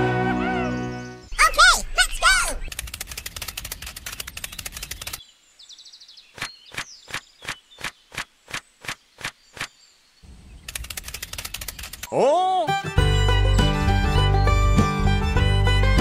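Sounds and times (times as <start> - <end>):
evenly spaced ticks: 2.6 - 5.2, 6.3 - 9.7, 10.6 - 12.1
fast dense clicking: 2.6 - 5.2, 10.6 - 12.1.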